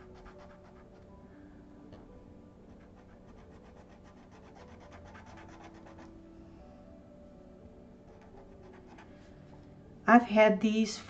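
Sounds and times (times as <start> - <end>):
pen nib scratching on paper: 0.0 - 1.1, 2.7 - 6.1, 8.1 - 9.1.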